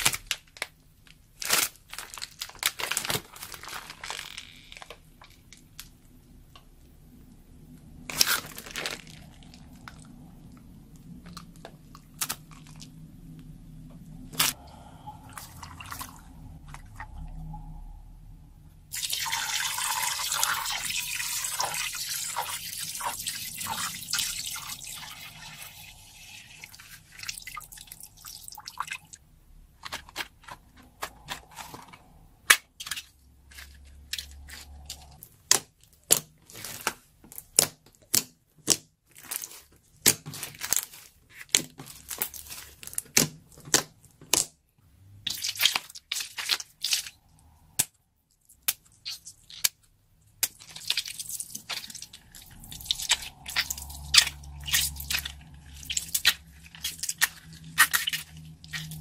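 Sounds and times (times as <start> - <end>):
slime pouring and splashing: 8.1 - 10.5, 14.4 - 17.5, 18.9 - 29.2, 45.2 - 47.8, 48.6 - 59.0.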